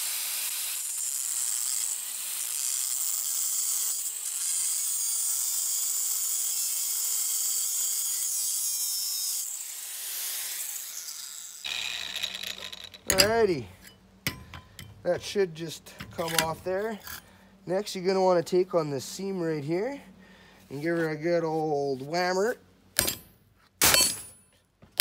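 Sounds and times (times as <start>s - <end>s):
angle grinder grinding metal: 0.0s - 17.3s.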